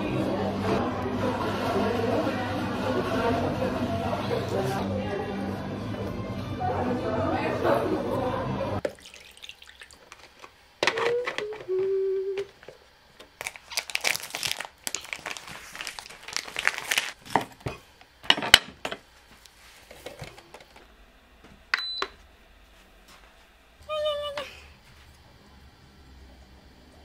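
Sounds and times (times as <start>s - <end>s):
plastic packaging crinkling: 13.3s - 17.5s.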